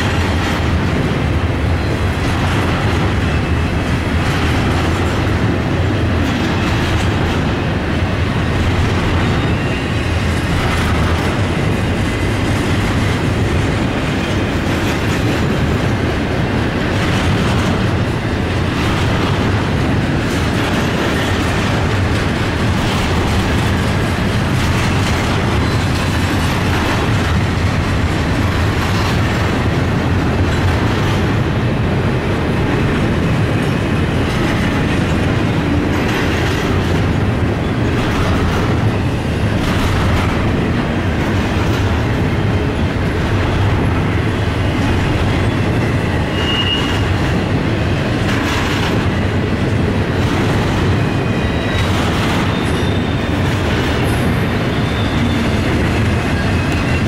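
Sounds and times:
freight train rumbling past: 0.0s - 57.0s
wheels clacking over rail joints: 0.0s - 57.0s
high wheel squeal: 9.2s - 10.3s, 46.2s - 47.2s, 51.1s - 53.4s, 54.0s - 55.7s.

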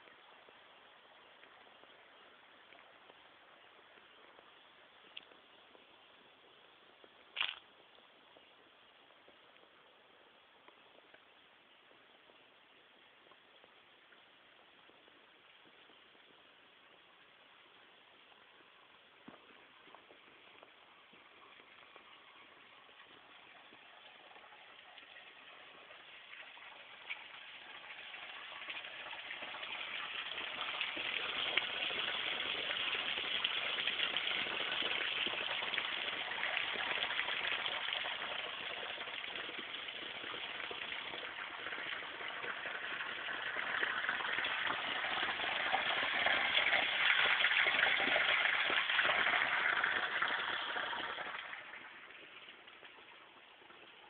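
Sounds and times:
running water gushing: 19.4s - 54.0s.

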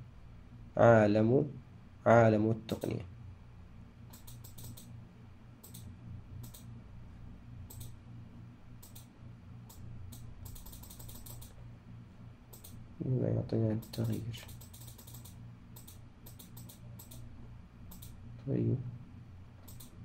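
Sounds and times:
low steady hum: 0.0s - 20.0s
keyboard and mouse clicks: 4.1s - 4.9s, 5.6s - 6.7s, 7.7s - 8.0s, 8.8s - 9.1s, 9.7s - 11.6s, 12.5s - 12.8s, 13.8s - 17.2s, 17.9s - 18.2s, 19.6s - 20.0s.

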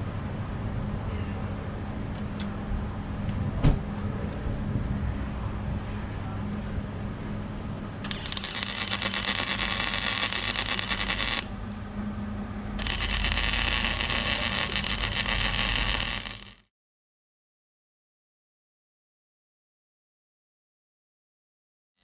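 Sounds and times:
low hum: 1.7s - 16.6s
welding arc crackle and hiss: 8.0s - 11.5s, 12.8s - 16.7s.

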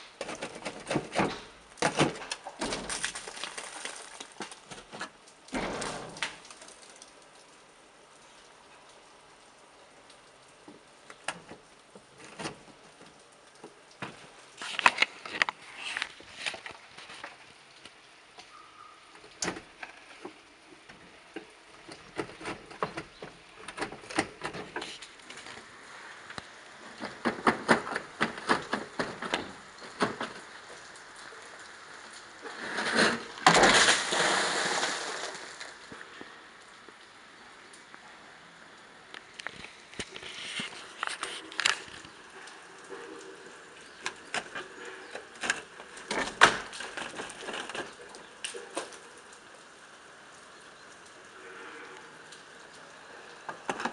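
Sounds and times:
falling ice clatter: 0.2s - 7.1s, 32.0s - 36.2s, 43.8s - 49.0s
ice cracking and shards falling: 0.2s - 7.2s, 19.3s - 36.3s, 39.4s - 42.2s, 43.9s - 49.0s.

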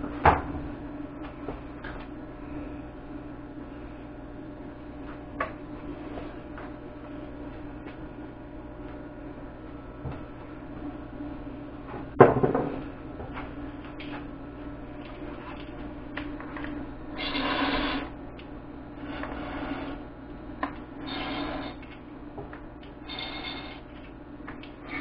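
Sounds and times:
gas hissing from torch tip: 17.2s - 18.1s, 21.0s - 21.8s.

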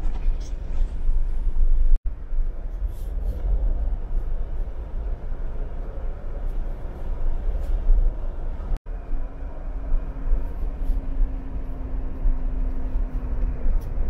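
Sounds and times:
vehicle road rumble: 0.0s - 14.0s.

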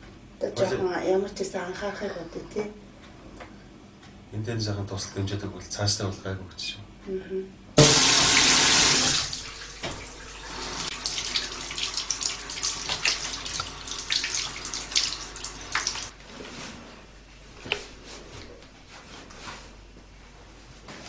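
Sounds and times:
sink tap running: 7.8s - 16.1s
water splashing and dripping: 7.8s - 16.1s.

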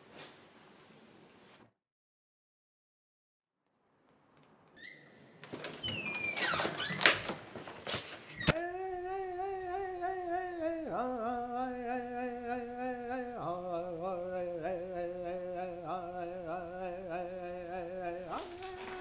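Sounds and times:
person humming a chant: 8.5s - 19.0s.

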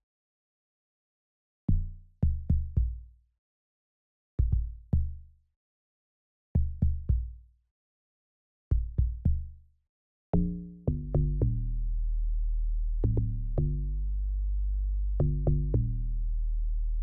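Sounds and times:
steady low bass: 10.4s - 17.0s.

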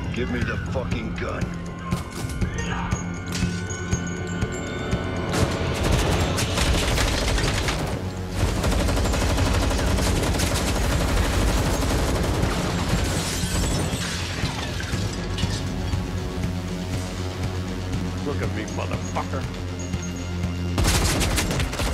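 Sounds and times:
low film score music: 0.0s - 21.9s
rapid gunfire: 5.3s - 14.3s, 20.8s - 21.9s.

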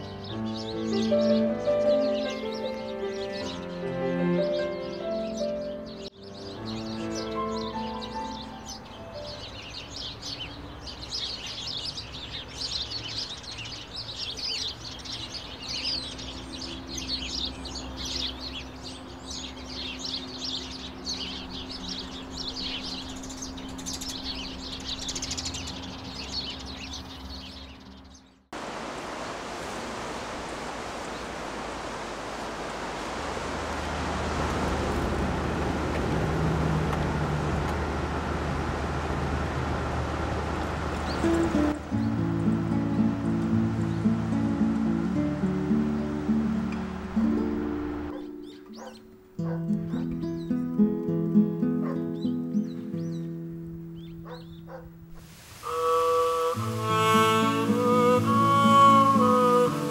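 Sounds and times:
sparrows chirping rapidly: 0.0s - 28.5s, 40.1s - 55.2s, 56.6s - 59.9s
steady rushing noise: 28.6s - 41.9s.

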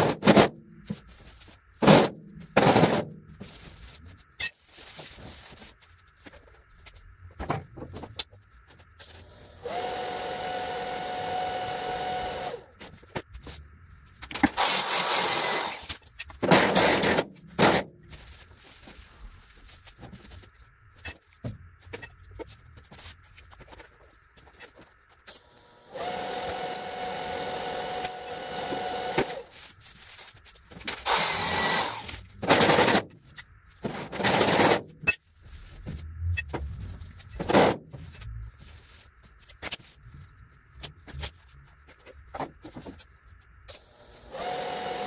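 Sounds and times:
loud noisy bursts: 14.6s - 15.9s.

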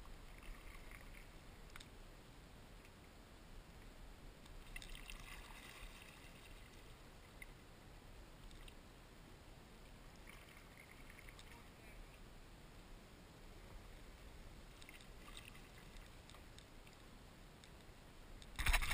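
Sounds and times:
kayak paddle splashing: 18.6s - 18.9s.

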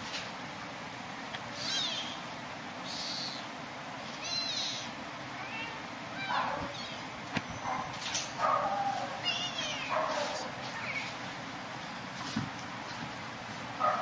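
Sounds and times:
kittens mewing: 1.5s - 11.2s.

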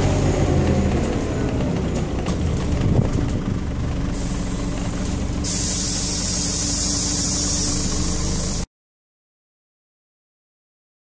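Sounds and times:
bus diesel engine running: 0.0s - 8.7s
compressed air hissing: 4.1s - 4.5s, 5.4s - 8.7s.

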